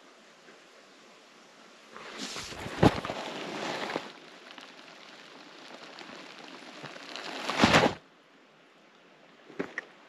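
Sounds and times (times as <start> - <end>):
crackly hiss with ticks: 1.9 - 7.8.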